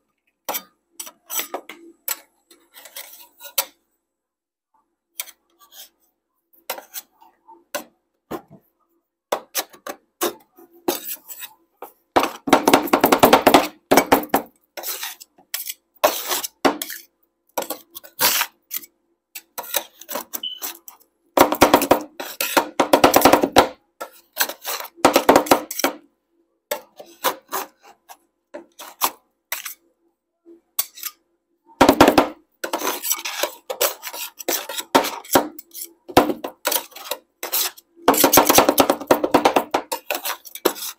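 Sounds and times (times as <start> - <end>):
metal spatulas scraping on steel: 0.4 - 3.8, 5.2 - 6.1, 6.7 - 7.4, 9.4 - 11.6, 14.8 - 21.0, 21.9 - 23.3, 24.0 - 26.0, 26.7 - 29.9, 30.7 - 31.2, 32.6 - 40.9
rapid spatula strikes: 9.3 - 18.8, 19.4 - 26.1, 31.8 - 40.9.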